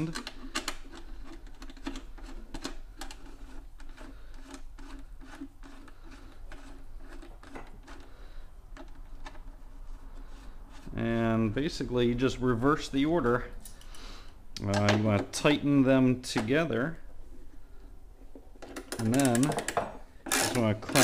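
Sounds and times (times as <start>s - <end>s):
wrench clicking on nuts: 18.8s - 21.0s.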